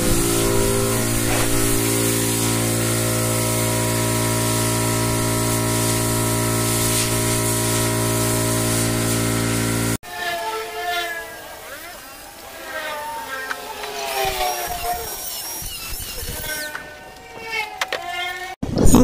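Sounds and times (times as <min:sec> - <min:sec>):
steady tonal hum: 0:00.0 - 0:05.7.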